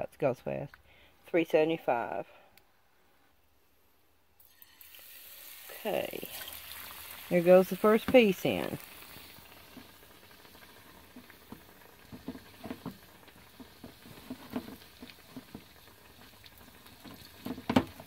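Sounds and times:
fish frying in oil: 4.4 - 18.0.

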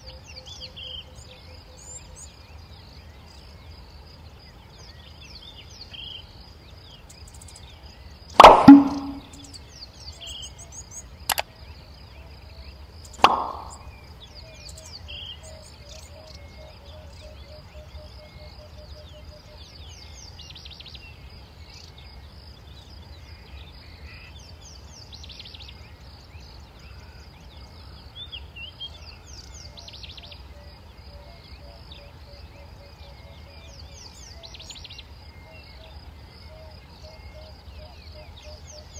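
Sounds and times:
loud knock: 8.4 - 9.4, 13.2 - 13.8
sharp click: 8.4 - 9.4, 13.2 - 13.8
thump: 8.4 - 9.4, 13.2 - 13.8
low pulsing call: 8.4 - 9.5.

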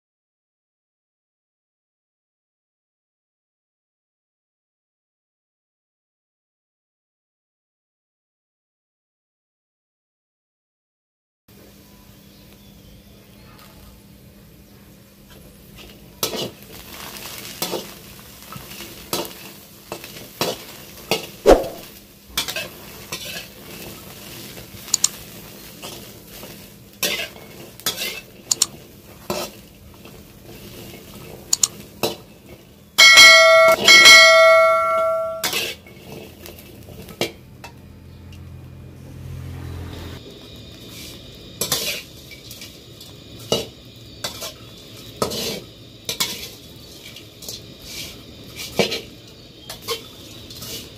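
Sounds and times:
metal spatula scraping a wok: 22.4 - 24.6, 25.6 - 28.4, 29.2 - 29.6, 35.0 - 37.3, 40.9 - 42.7, 43.5 - 50.9
sharp clicks: 24.9 - 25.1, 28.5 - 28.7, 31.5 - 31.7
ringing metallic tone: 33.0 - 35.6.

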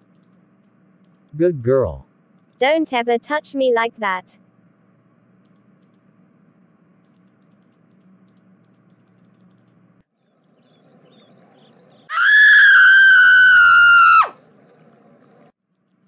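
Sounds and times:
girl screaming: 12.1 - 14.3.

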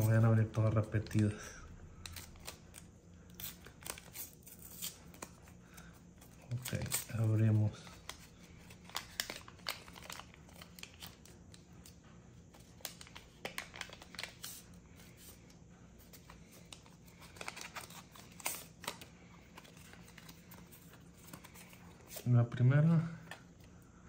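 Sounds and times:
cards handled: 2.0 - 11.9, 12.5 - 15.4, 16.0 - 22.4
wrapper tearing and crinkling: 6.5 - 11.3, 12.8 - 14.6, 17.1 - 20.6.

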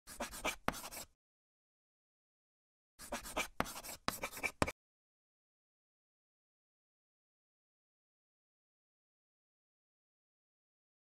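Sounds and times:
chalk scratching on blackboard: 0.1 - 1.2, 3.0 - 4.8.

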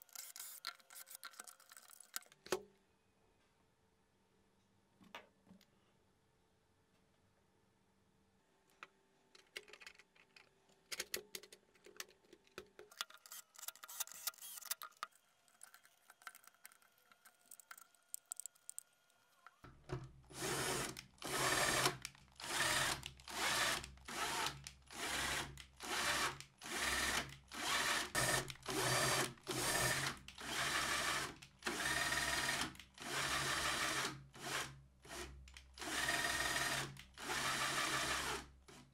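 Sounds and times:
plastic parts clicking: 0.0 - 2.6, 9.4 - 18.9
cordless drill bursts: 13.9 - 14.7, 20.3 - 35.2, 35.8 - 38.4.

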